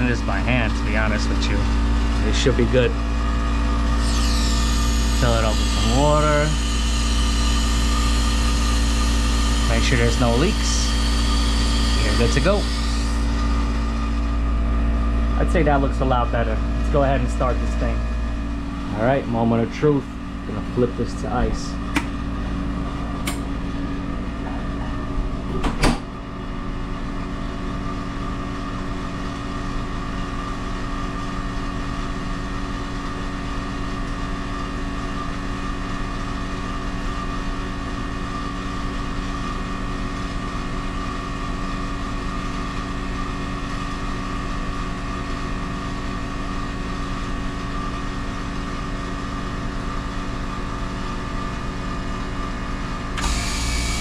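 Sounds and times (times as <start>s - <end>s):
machinery hum: 0.0s - 31.6s
sharp click: 21.9s - 22.2s, 23.2s - 23.5s.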